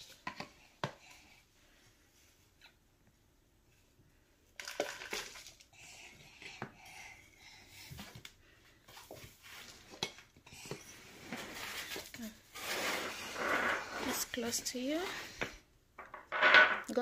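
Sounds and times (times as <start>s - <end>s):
trowel scraping potting mix: 11.3s - 14.5s.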